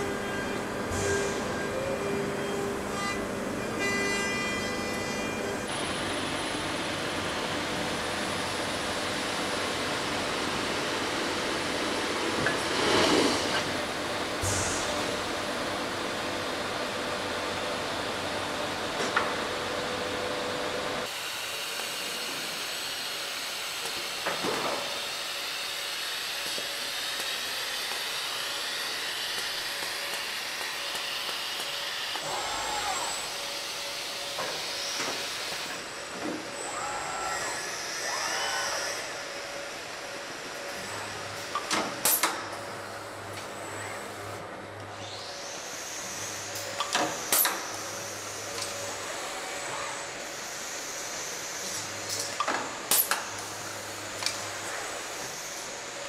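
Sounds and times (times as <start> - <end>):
hiss of air and machinery: 0.5 - 2.0, 5.7 - 18.4, 21.0 - 56.0
robot motors whirring: 36.3 - 39.2.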